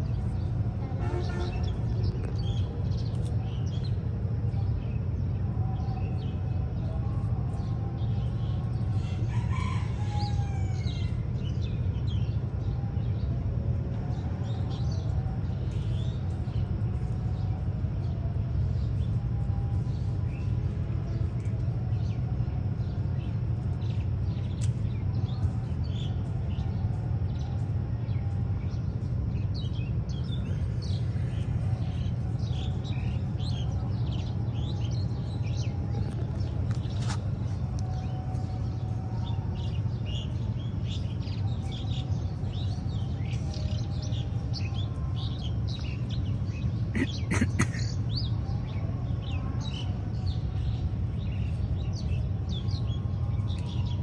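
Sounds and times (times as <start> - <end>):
low background rumble: 0.0 - 54.0
small birds chirping: 14.4 - 54.0.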